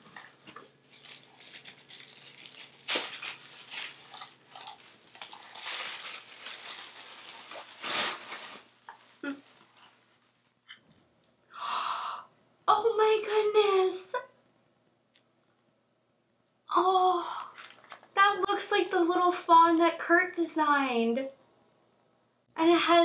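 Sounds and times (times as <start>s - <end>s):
tissue paper rustling: 0.7s - 10.5s.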